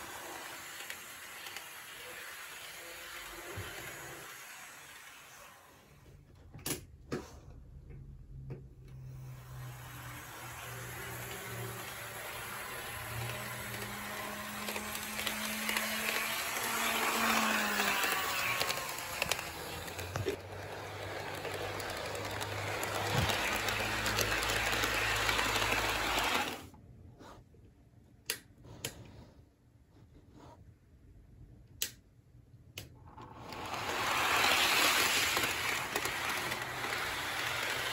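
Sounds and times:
model train wheels rumbling: 0:00.0 - 0:05.3, 0:09.4 - 0:26.7, 0:33.3 - 0:37.9
model train motor hum: 0:00.0 - 0:05.9, 0:09.1 - 0:26.7, 0:33.3 - 0:37.9.

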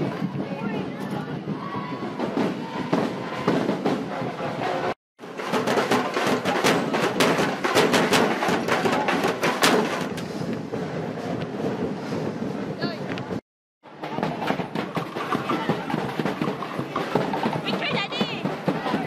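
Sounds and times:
drumming with sticks: 0:00.0 - 0:19.0.

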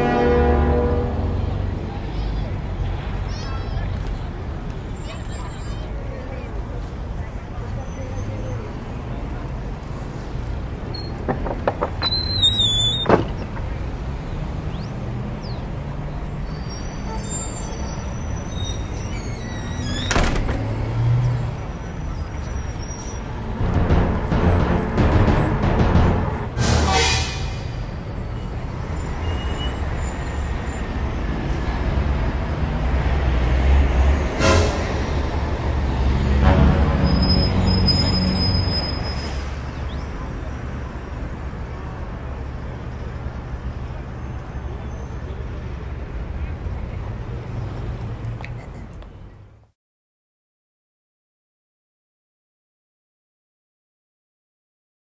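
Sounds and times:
door hinge squeaking: 0:10.9 - 0:13.6, 0:17.4 - 0:20.9.

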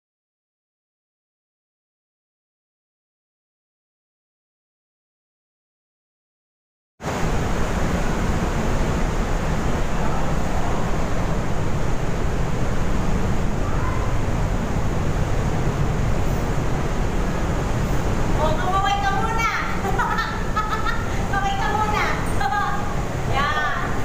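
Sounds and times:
waterfall rushing through gorge: 0:07.1 - 0:24.0.

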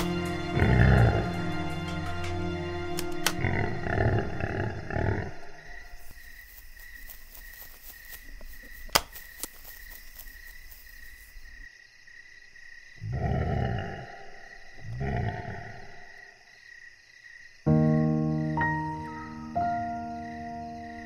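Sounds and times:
wild boar grunting: 0:00.5 - 0:01.4, 0:03.3 - 0:06.0, 0:13.0 - 0:16.4.

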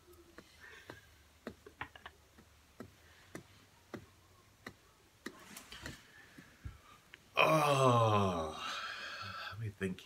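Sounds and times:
faint regular ticking: 0:00.0 - 0:06.0
quiet room hum: 0:00.0 - 0:10.0.

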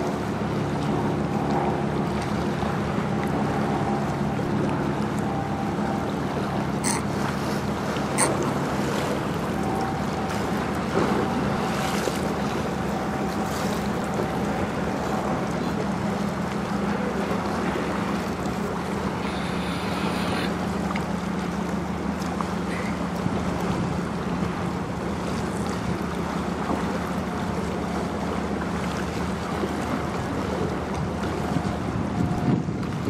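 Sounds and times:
ship engines humming: 0:00.0 - 0:33.0
water rushing along hull: 0:00.0 - 0:33.0
faint thin whine: 0:18.9 - 0:20.8
wind on microphone: 0:30.7 - 0:33.0.

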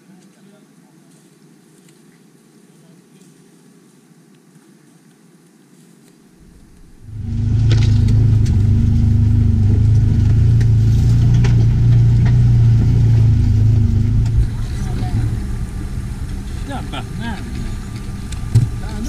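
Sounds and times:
off-road vehicle engine running: 0:06.4 - 0:19.0
knocks and rattles: 0:07.2 - 0:15.6.

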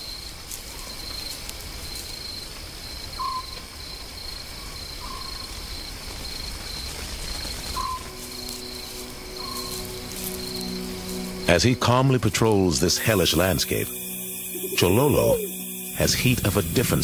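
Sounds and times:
insects chirping: 0:00.0 - 0:17.0
bird call with downward slur: 0:14.5 - 0:15.6.

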